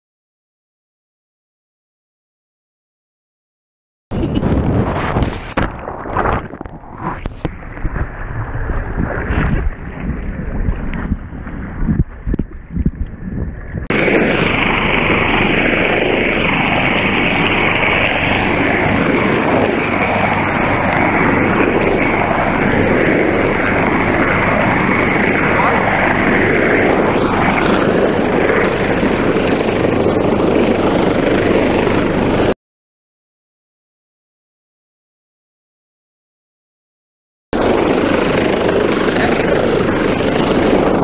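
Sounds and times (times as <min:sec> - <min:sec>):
high turbine whine: 0:04.1 - 0:32.5, 0:37.6 - 0:41.0
wind buffeting microphone: 0:04.1 - 0:32.5, 0:37.6 - 0:41.0
helicopter hovering overhead: 0:04.1 - 0:32.6, 0:37.6 - 0:41.0
sea water splashing: 0:04.9 - 0:13.3.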